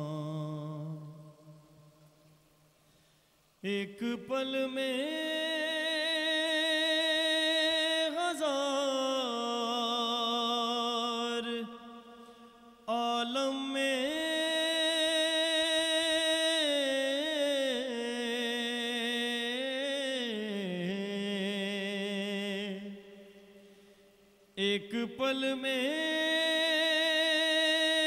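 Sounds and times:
man singing into a microphone: 0:00.0 - 0:02.0, 0:03.6 - 0:23.5, 0:24.6 - 0:28.0.

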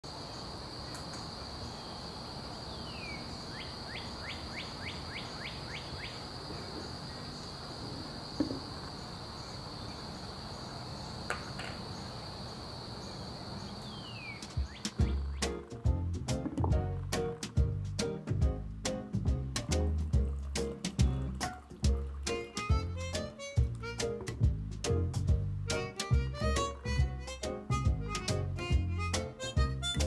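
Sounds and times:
outdoor hiss: 0:00.0 - 0:30.0
insect drone: 0:00.1 - 0:15.4
quick insect chirps: 0:00.1 - 0:15.6.

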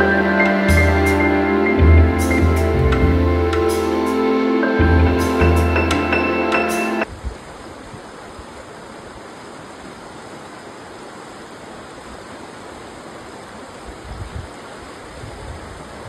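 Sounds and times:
river water rushing: 0:00.0 - 0:15.2
wind buffeting microphone: 0:13.9 - 0:16.0.

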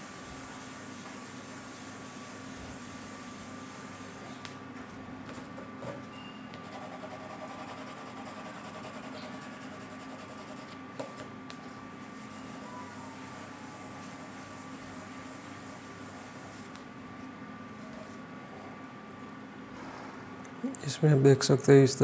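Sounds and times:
tissue rubbing on paper: 0:00.0 - 0:04.4, 0:12.0 - 0:16.8
background hum: 0:00.0 - 0:22.0.

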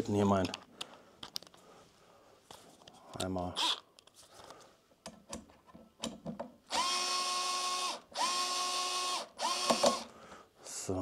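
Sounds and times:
cordless screwdriver whine: 0:06.7 - 0:10.1.

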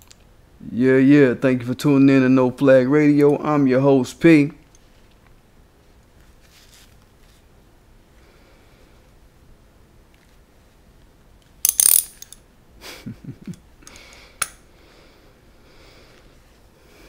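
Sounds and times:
soft rustles: 0:04.8 - 0:07.5, 0:10.1 - 0:11.1.

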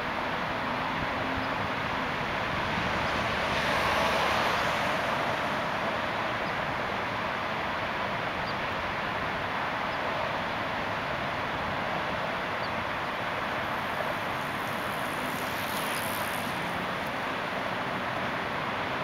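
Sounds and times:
city street traffic: 0:00.0 - 0:19.0
vehicle passing: 0:02.0 - 0:06.3, 0:13.7 - 0:19.0.

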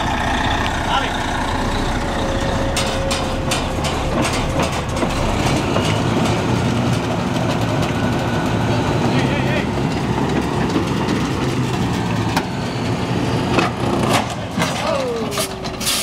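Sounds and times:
diesel truck engine running: 0:00.0 - 0:16.0
sharp clicks and knocks: 0:02.6 - 0:08.2.

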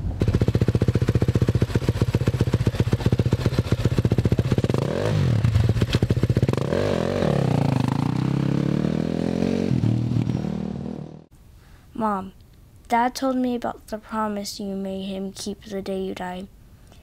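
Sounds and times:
dirt bike engine revving: 0:00.2 - 0:11.3.

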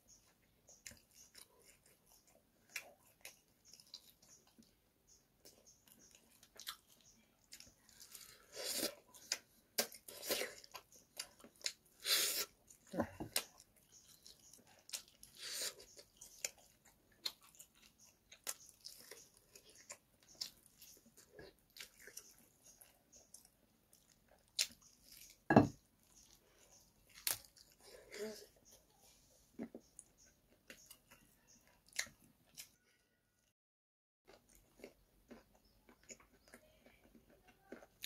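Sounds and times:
chewing and mouth sounds: 0:00.1 - 0:29.0, 0:29.6 - 0:32.8, 0:34.3 - 0:38.0.

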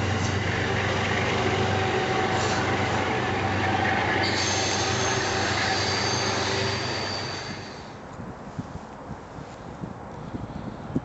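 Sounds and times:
wheels squealing on rails: 0:00.0 - 0:08.0
train wheels rumbling on track: 0:00.0 - 0:08.1.

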